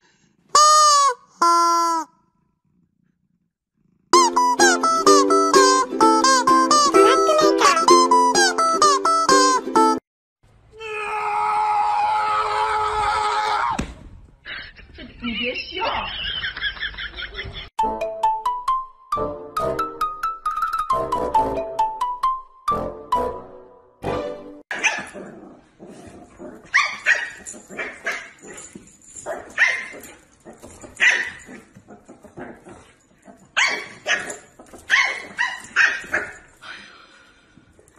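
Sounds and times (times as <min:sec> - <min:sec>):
plucked-string music: 0:04.2 - 0:10.0
puppy yapping: 0:24.7 - 0:25.2, 0:30.9 - 0:31.6, 0:33.6 - 0:36.4.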